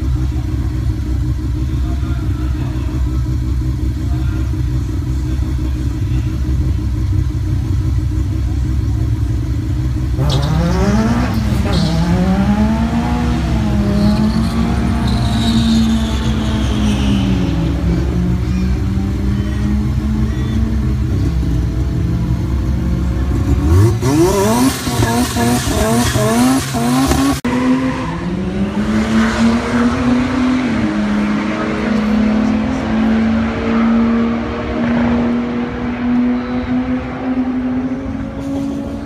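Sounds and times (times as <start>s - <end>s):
car engine revving: 0.0s - 39.0s
engine held at high revs: 4.6s - 39.0s
tyre squeal: 10.2s - 12.4s, 13.4s - 21.4s.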